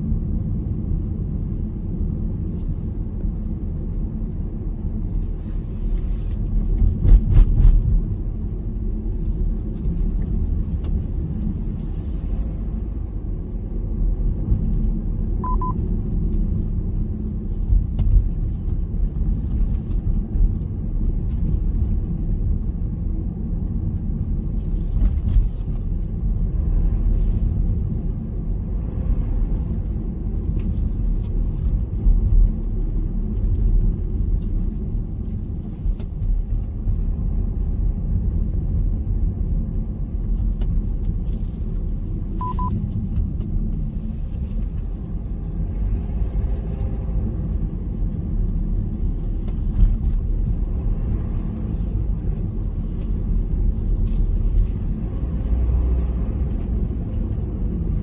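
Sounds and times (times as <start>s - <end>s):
car road and engine rumble: 0.0s - 58.0s
high double beep: 15.4s - 15.8s, 42.4s - 42.7s.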